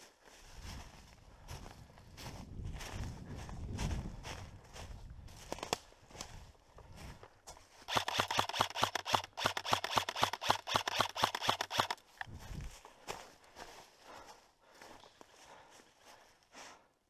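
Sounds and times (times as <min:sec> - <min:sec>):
airsoft rifle rapid shots: 0:07.9 - 0:12.2.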